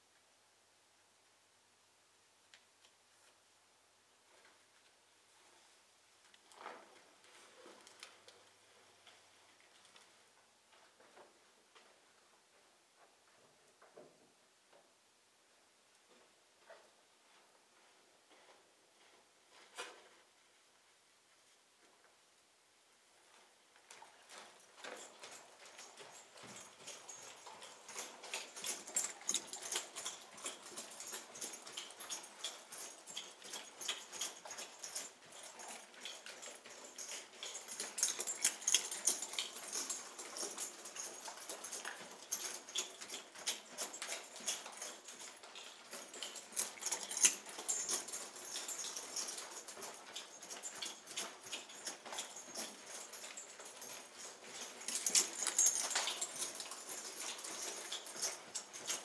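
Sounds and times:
horse hooves on sand: 0:23.8 - 0:59.0.

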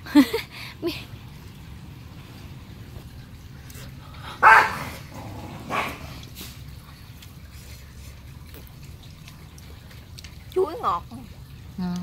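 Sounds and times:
dog barking: 0:04.4 - 0:05.0, 0:05.6 - 0:06.1.

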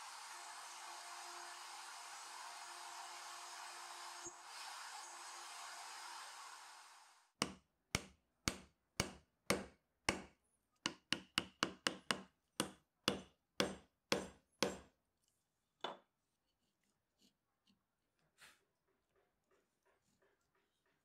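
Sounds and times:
mallet striking chisel: 0:07.4 - 0:10.3, 0:10.9 - 0:14.9.

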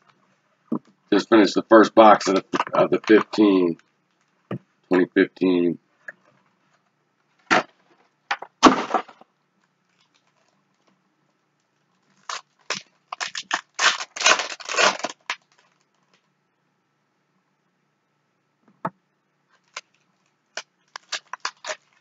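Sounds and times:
foil wrapper crinkling and tearing: 0:01.9 - 0:04.3, 0:12.0 - 0:16.2, 0:19.6 - 0:22.0.

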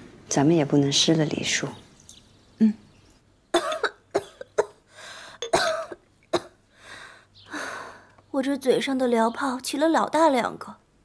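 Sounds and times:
person coughing: 0:03.6 - 0:04.8, 0:05.4 - 0:06.6
person breathing: 0:04.9 - 0:05.4, 0:06.7 - 0:08.2.

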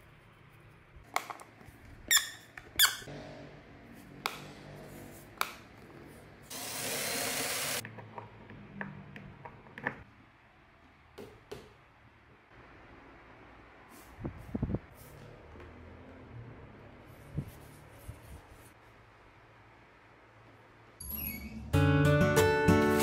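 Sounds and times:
squeak: 0:02.1 - 0:03.1, 0:21.0 - 0:21.7.

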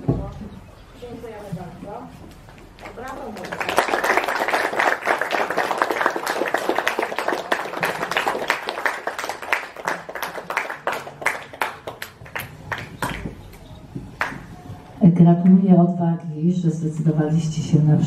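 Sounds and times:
audience applause: 0:03.3 - 0:13.6.

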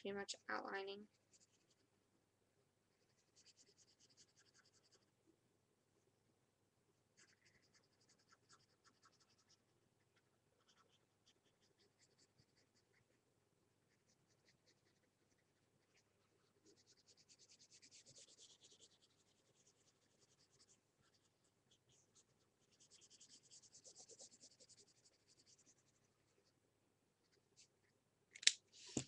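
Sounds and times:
marker scribbling on paper: 0:01.2 - 0:01.8, 0:03.0 - 0:05.1, 0:07.2 - 0:09.6, 0:10.2 - 0:13.2, 0:13.9 - 0:26.0.

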